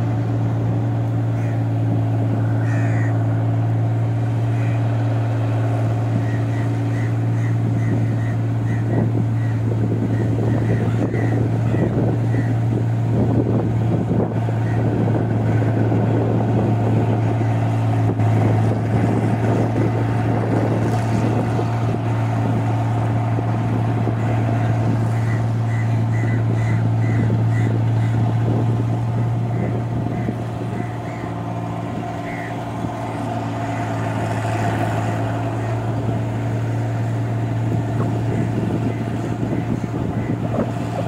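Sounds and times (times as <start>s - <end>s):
combine harvester engine drone: 0.0s - 41.0s.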